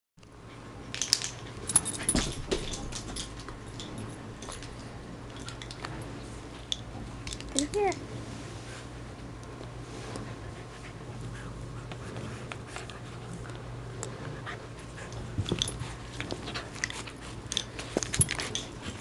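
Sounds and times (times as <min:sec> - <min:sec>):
dog panting: 0:10.0 - 0:17.6.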